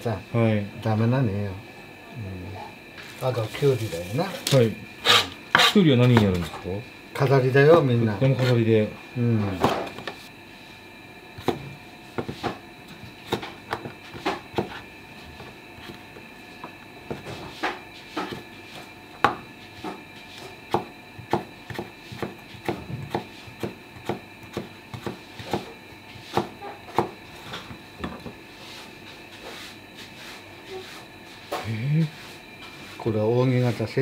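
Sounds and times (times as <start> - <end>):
knife cutting on wooden board: 5.0 - 5.8.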